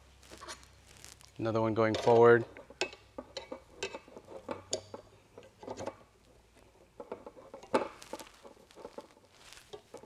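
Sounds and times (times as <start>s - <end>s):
metal rods clicking and knocking: 1.7s - 6.1s, 6.9s - 9.1s.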